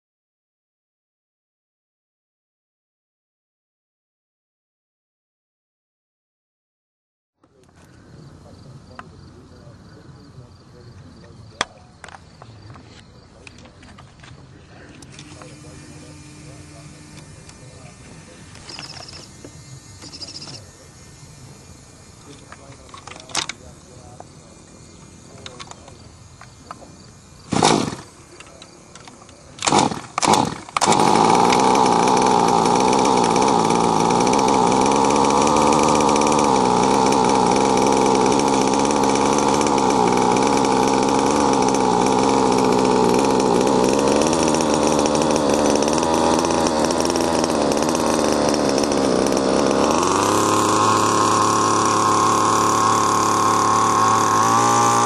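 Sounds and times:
two-stroke engine starting and idling: 14.7 - 26.1, 26.7 - 55.0.

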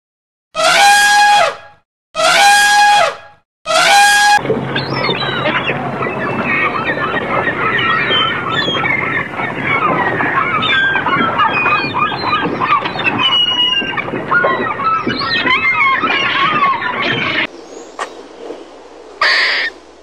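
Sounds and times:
seagulls calling: 3.7 - 18.6, 19.2 - 19.8.

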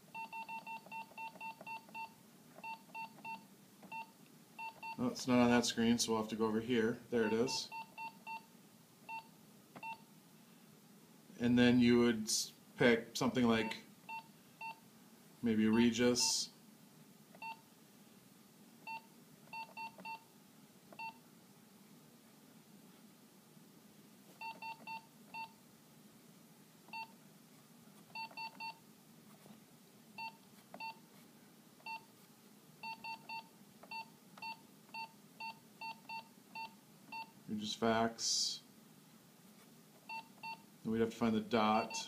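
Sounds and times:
keypad beeps: 0.1 - 5.0, 7.2 - 8.5, 9.1 - 10.0, 17.4 - 17.6, 18.9 - 20.2, 20.9 - 21.2, 24.4 - 25.5, 26.9 - 27.1, 28.1 - 28.8, 30.2 - 31.0, 31.8 - 32.0, 32.8 - 37.3, 40.1 - 40.6, 41.8 - 42.0.

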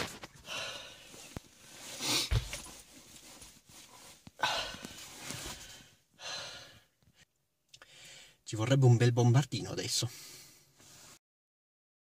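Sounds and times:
man huffing breath: 0.4 - 2.5, 4.4 - 6.9.

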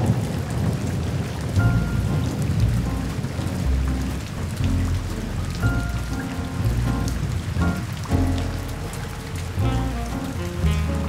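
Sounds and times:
heavy rain on a window: 0.0 - 11.0
low rumble: 1.6 - 11.0.

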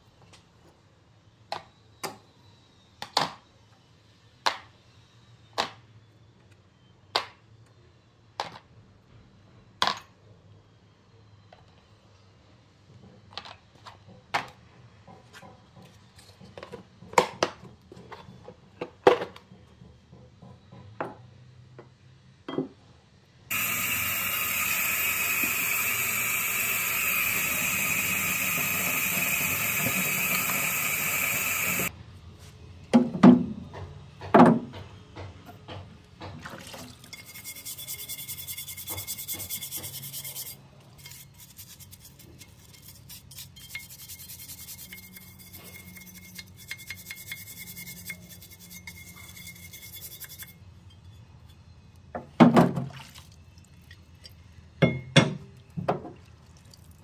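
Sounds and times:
faucet running water: 23.5 - 31.9.

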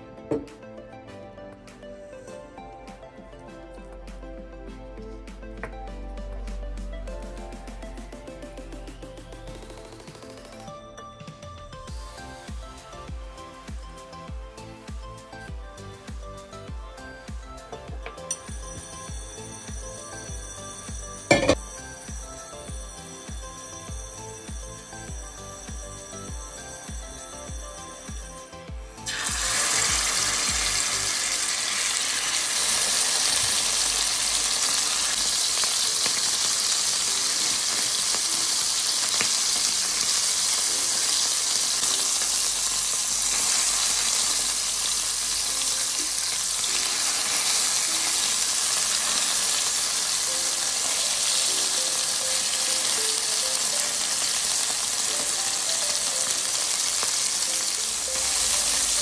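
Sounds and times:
meat sizzling in hot oil: 18.3 - 59.0.

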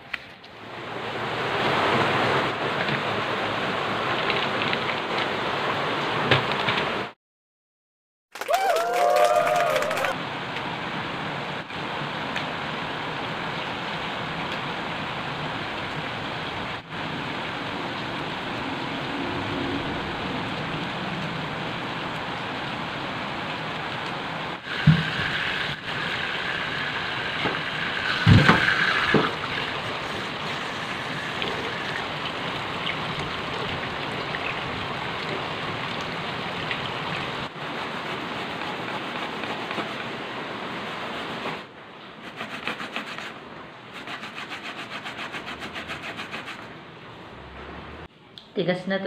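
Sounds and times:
water hissing: 24.6 - 33.1.

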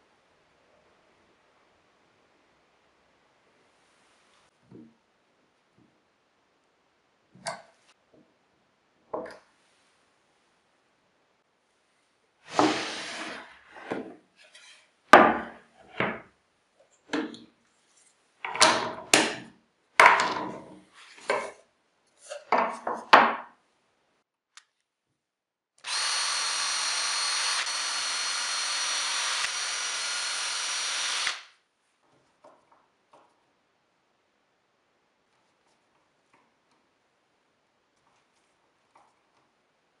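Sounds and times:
boards sliding on workbench: 12.5 - 16.2
wooden boards knocking: 15.2 - 16.2
power drill whining: 25.8 - 31.5.

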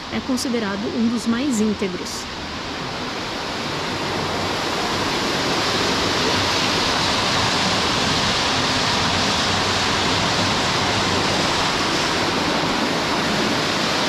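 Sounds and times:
water rushing down channel: 0.0 - 14.0.

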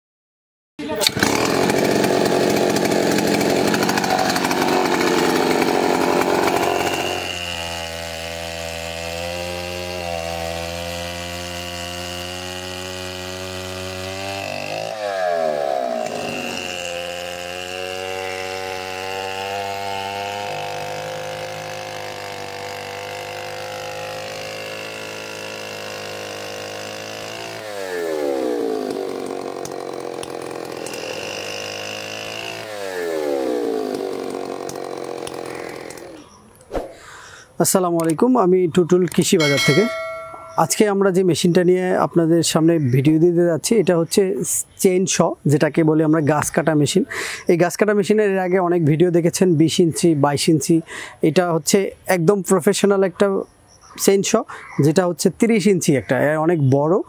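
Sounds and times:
chainsaw sawing through log: 0.9 - 36.3, 39.4 - 40.8.

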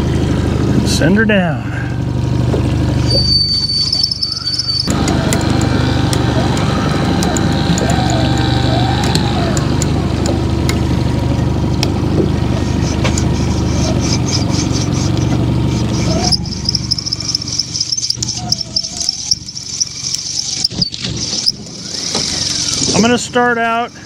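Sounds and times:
boat motor running: 0.0 - 24.0
fishing reels clicking: 3.2 - 10.3, 15.9 - 23.0.

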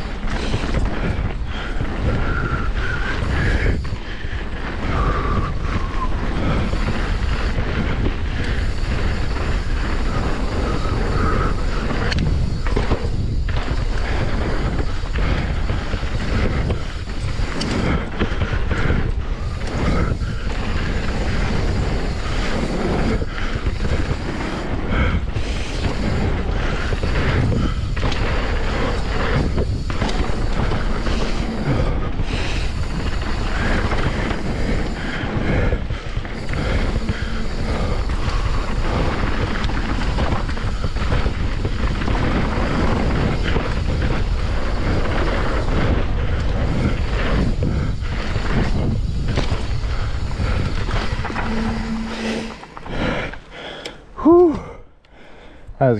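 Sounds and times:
bike knocking over bumps: 0.0 - 53.6
wind buffeting microphone: 0.0 - 54.9
bike tyres rumbling on dirt: 0.0 - 55.9.

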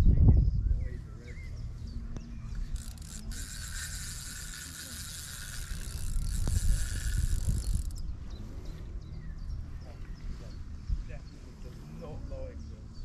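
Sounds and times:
fishing reel ratcheting: 2.5 - 8.0.

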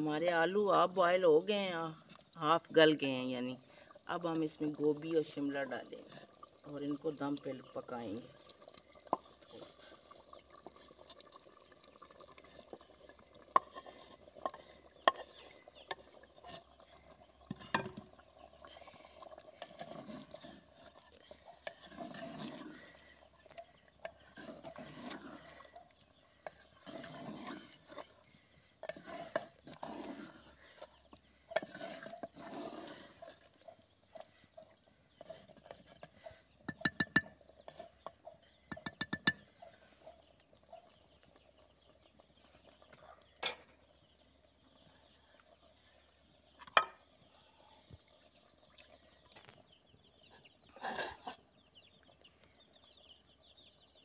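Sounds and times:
wooden spoon stirring wet vegetables: 0.0 - 54.0
knocks against clay pot: 36.7 - 37.4, 38.7 - 39.4, 46.7 - 47.0.

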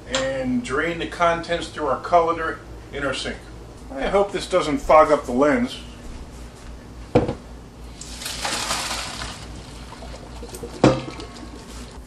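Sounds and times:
water pouring into colander: 7.9 - 12.0
pot clunking: 10.6 - 11.5.

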